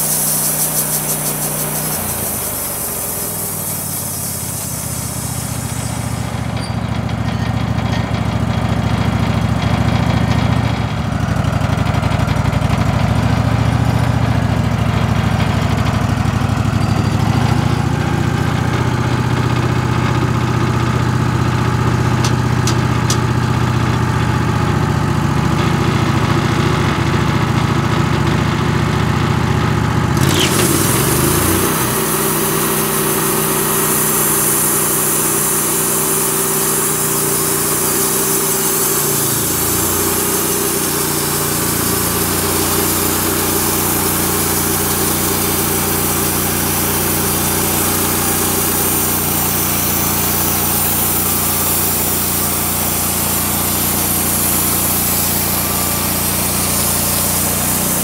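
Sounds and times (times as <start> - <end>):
band sawmill engine: 0.0 - 58.0
band blade cutting log: 22.2 - 23.5, 30.2 - 33.2.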